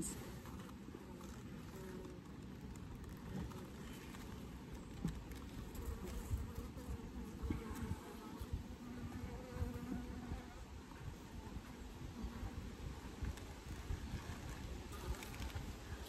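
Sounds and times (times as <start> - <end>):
wind buffeting microphone: 5.7 - 16.0.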